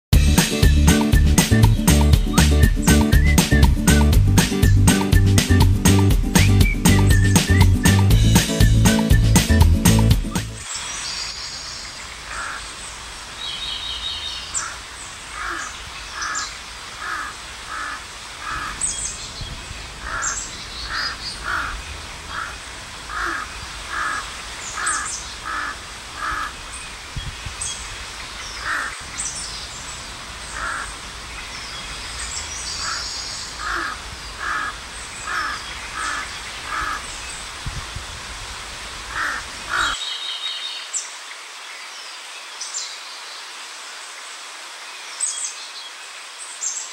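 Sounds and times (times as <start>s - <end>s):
small birds chirping: 6.4s - 37.6s
crow cawing: 12.3s - 12.7s, 14.6s - 18.8s, 20.0s - 26.6s, 28.6s - 29.0s, 30.5s - 30.9s, 32.8s - 33.0s, 33.6s - 37.1s, 39.1s - 40.0s.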